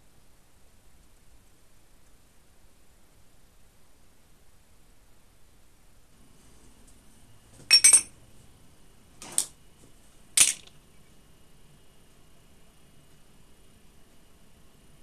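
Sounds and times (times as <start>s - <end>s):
metal parts clinking: 7.7s - 8.1s, 10.4s - 10.7s.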